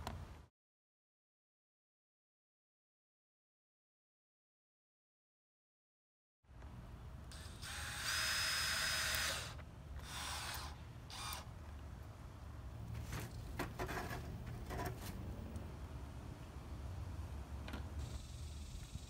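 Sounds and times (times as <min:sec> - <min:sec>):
cordless drill whining: 0:07.3 - 0:11.5.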